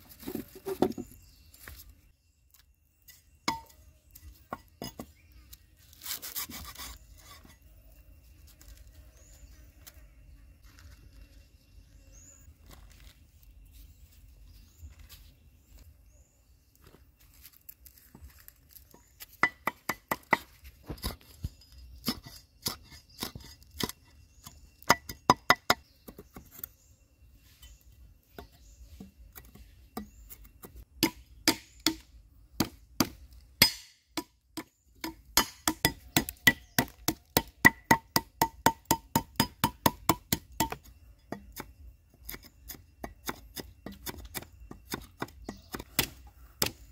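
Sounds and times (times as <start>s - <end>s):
cleaver chopping on wooden block: 31.0s - 41.7s.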